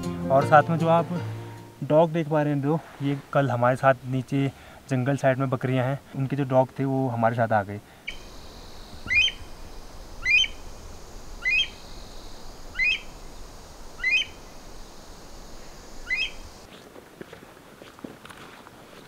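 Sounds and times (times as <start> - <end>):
bird calling: 8.0 - 16.7.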